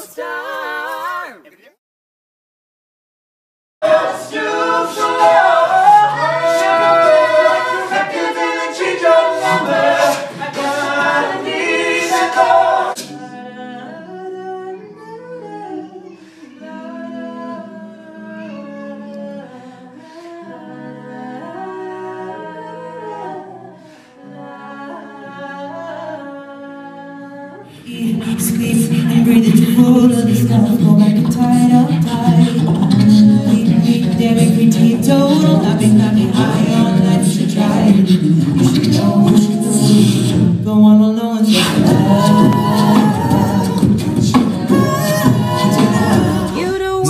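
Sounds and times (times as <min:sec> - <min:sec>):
a cappella group singing: 0:00.0 - 0:01.4, 0:03.8 - 0:47.0
bass voice: 0:27.9 - 0:47.0.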